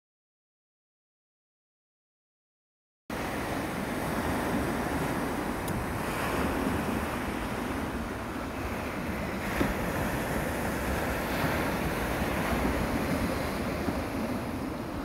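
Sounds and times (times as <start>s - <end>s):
wind on microphone: 3.1s - 15.0s
receding waves rolling pebbles: 3.2s - 15.0s.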